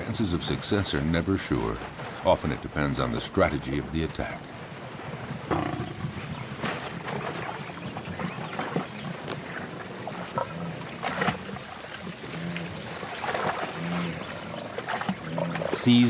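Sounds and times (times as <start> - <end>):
water splashing: 0.0 - 16.0
lion growling low: 5.5 - 6.2, 10.2 - 15.8.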